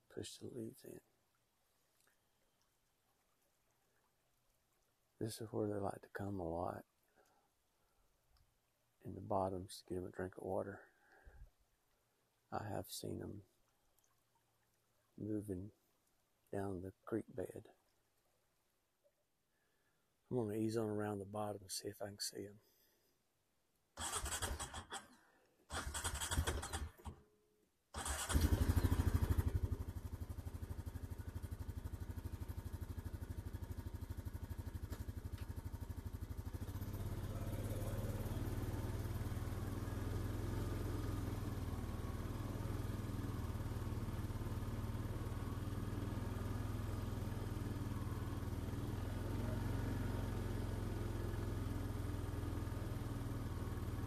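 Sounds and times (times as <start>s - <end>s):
small engine running: 24.0s - 25.0s, 25.7s - 27.2s, 28.0s - 54.0s
engine starter cranking: 24.0s - 27.2s, 28.0s - 29.5s.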